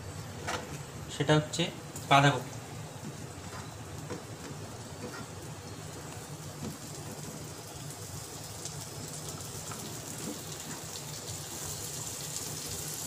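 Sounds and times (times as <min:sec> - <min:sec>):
cabbage sizzling in a wok: 0:03.1 - 0:13.0.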